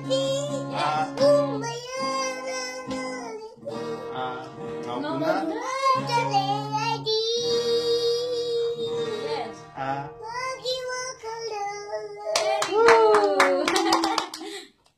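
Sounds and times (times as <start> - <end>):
child singing: 0.0 - 12.5
acoustic guitar: 0.0 - 14.2
hand clapping: 12.3 - 14.9.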